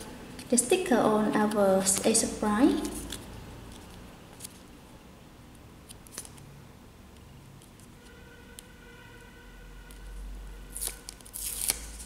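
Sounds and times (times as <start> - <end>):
paper sticker being peeled: 2.7 - 4.6, 5.9 - 6.4, 10.7 - 12.0.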